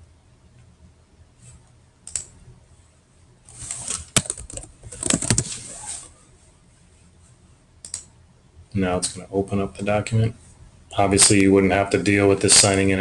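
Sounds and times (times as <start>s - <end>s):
computer keyboard typing: 3.9s - 5.5s, 7.8s - 8.0s.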